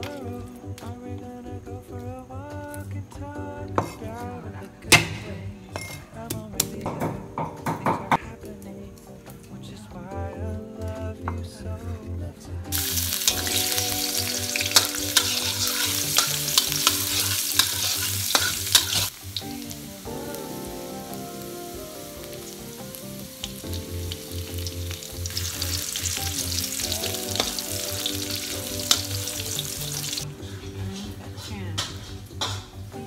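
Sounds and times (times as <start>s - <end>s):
garlic sizzling in hot oil: 12.7s - 30.3s
metal spatula scraping a wok: 12.8s - 19.1s, 28.8s - 32.9s.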